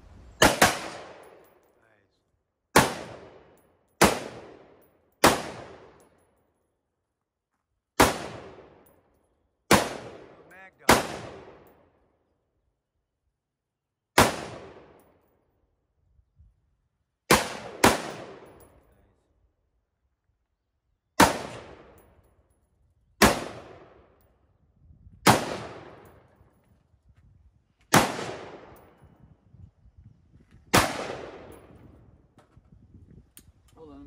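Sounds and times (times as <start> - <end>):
rifle shots echoing: 0.4 - 1.6, 2.8 - 6.0, 8.0 - 8.8, 9.7 - 11.8, 14.2 - 15.0, 17.3 - 18.7, 21.2 - 22.0, 23.2 - 24.1, 25.2 - 26.3, 27.9 - 29.0, 30.7 - 31.8.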